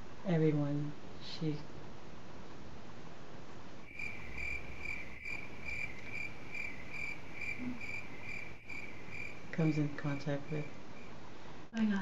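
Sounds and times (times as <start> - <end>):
cricket chirping: 3.8 - 11.2.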